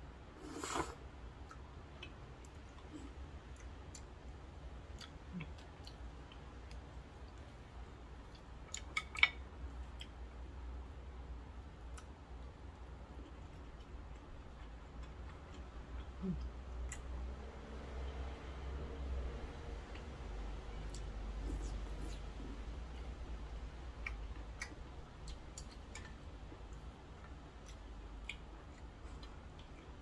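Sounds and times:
slurping noodles: 0.4s - 1.0s.

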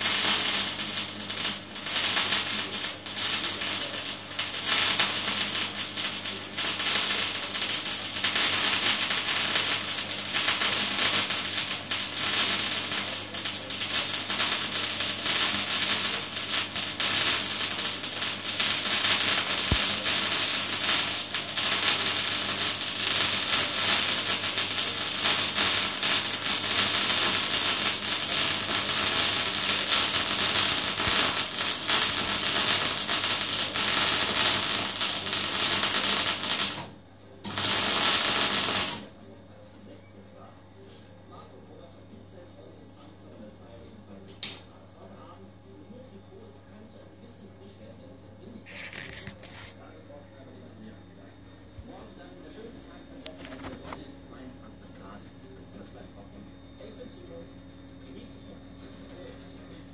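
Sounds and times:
welding arc hissing and crackling: 0.0s - 39.1s, 48.7s - 49.8s.

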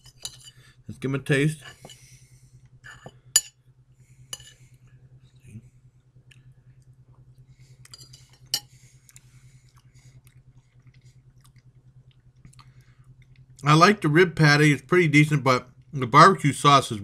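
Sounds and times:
metal spoon scraping ceramic plate: 0.0s - 0.6s, 2.9s - 3.5s, 4.3s - 4.6s, 7.9s - 8.7s
low hum: 0.0s - 17.0s.

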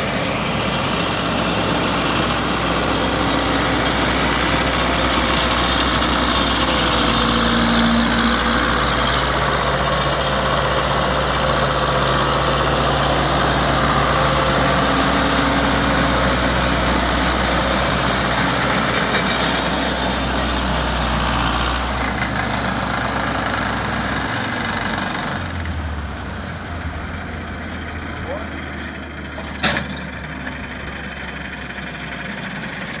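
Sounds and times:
tractor diesel engine under load: 0.0s - 33.0s.

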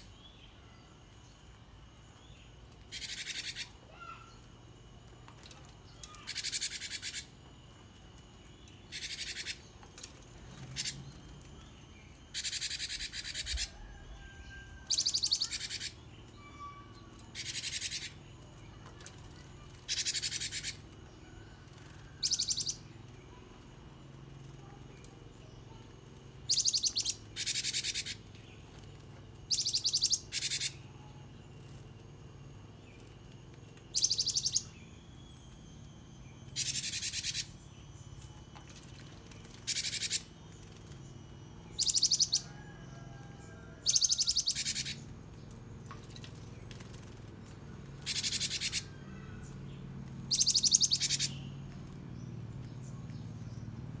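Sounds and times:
faint low hum: 0.0s - 54.0s
bird singing rapid high notes: 33.9s - 38.2s, 50.3s - 51.6s.

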